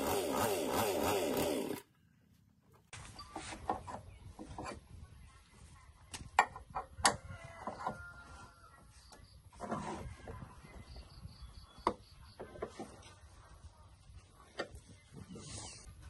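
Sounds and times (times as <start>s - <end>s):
chainsaw engine cutting off: 0.0s - 1.8s.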